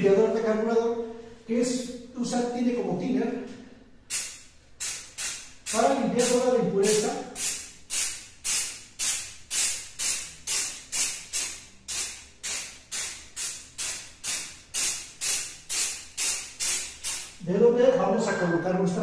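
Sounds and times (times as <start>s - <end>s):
aerosol spray hissing: 4.1s - 17.4s.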